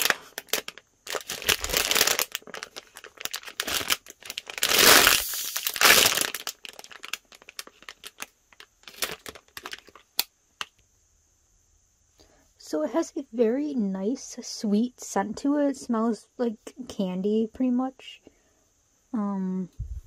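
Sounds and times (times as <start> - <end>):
plastic packaging crinkling: 0.0 - 10.7.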